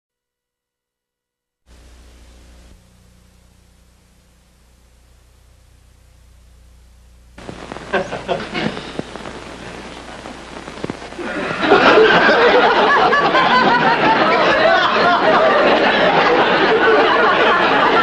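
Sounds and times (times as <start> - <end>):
low steady hum: 1.7 - 16.1
crowd chattering and chuckling: 7.8 - 9.1, 11.1 - 18.0.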